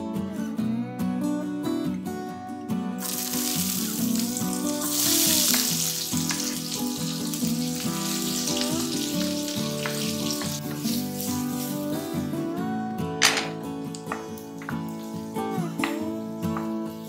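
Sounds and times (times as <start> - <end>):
acoustic guitar music: 0.0 - 17.0
onions sizzling in a pan: 3.0 - 12.3, 13.9 - 16.0.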